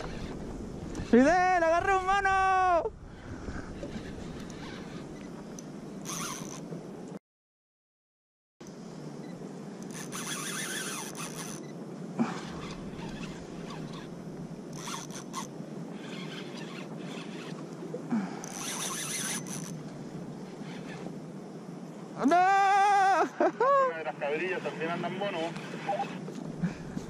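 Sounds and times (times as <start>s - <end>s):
wind: 0.0s - 7.2s, 8.6s - 27.0s
fishing reel buzzing: 3.7s - 5.3s, 6.0s - 6.6s, 9.8s - 17.8s, 18.4s - 19.8s, 20.5s - 21.2s.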